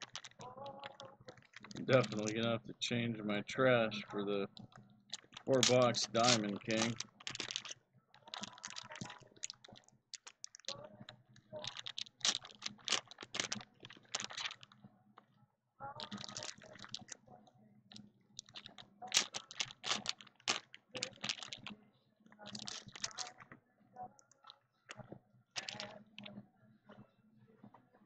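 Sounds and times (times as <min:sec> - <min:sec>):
trading cards clicking and snapping: 0:00.0 - 0:02.5, 0:04.5 - 0:10.8, 0:11.6 - 0:14.8, 0:16.0 - 0:17.2, 0:17.9 - 0:21.7, 0:22.4 - 0:23.5, 0:25.6 - 0:26.3.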